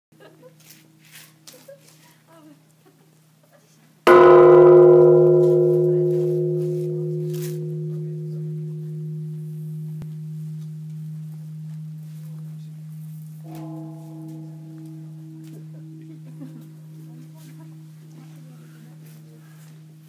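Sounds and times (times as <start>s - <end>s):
temple bell boom and ringing: 4.1s - 20.0s.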